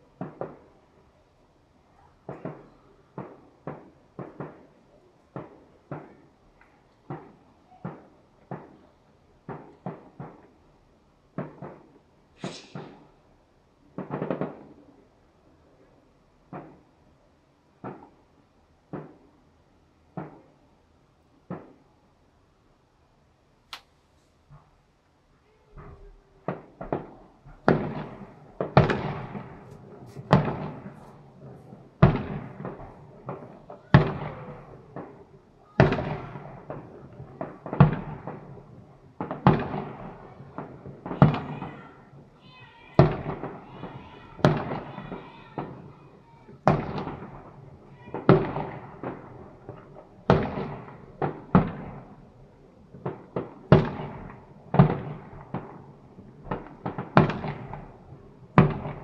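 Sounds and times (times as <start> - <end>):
firework bangs: 0.0 - 0.9, 2.2 - 10.6, 11.3 - 15.0, 26.0 - 52.3, 52.9 - 59.0
fireworks crackling: 11.3 - 15.2, 26.0 - 59.0
firework shell bursts: 12.4 - 13.2.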